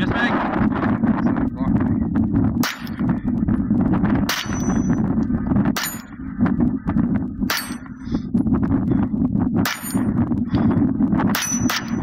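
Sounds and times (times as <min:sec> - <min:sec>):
steel target clanging: 0:04.3 - 0:05.0, 0:07.5 - 0:08.0, 0:11.3 - 0:12.0.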